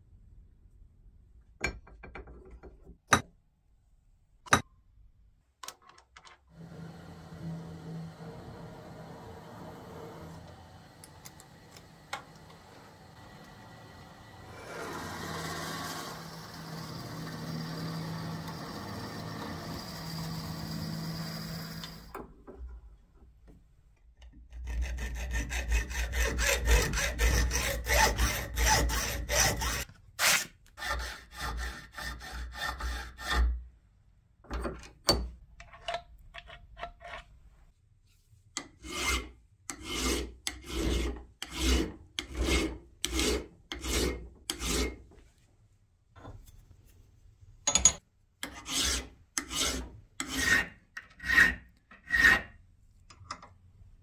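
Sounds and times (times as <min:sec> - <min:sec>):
file rasping on metal: 0:24.5 - 0:33.6, 0:38.6 - 0:45.0, 0:48.4 - 0:52.6.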